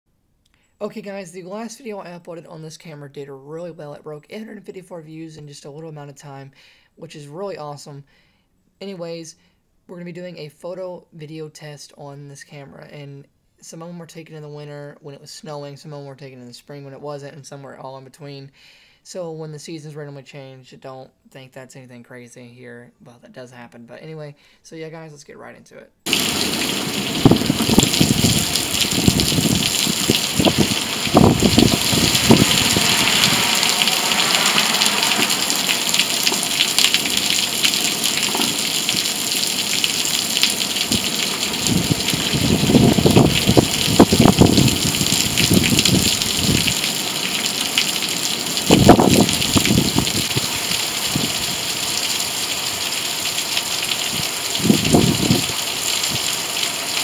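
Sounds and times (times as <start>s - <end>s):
heavy rain splashing into water: 26.1s - 57.0s.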